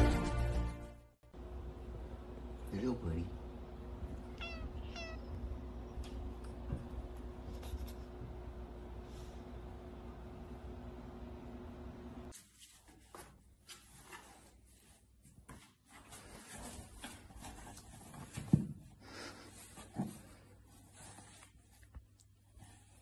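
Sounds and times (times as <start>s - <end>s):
cat rustling in cardboard box: 12.3s - 23.0s.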